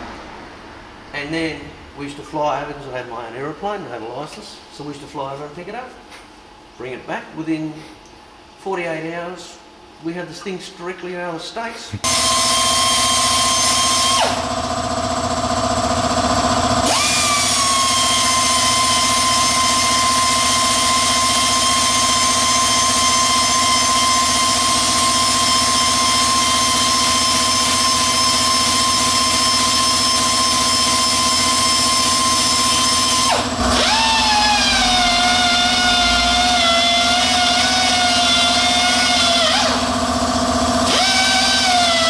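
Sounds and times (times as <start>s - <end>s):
power sander whining: 12.0s - 42.0s.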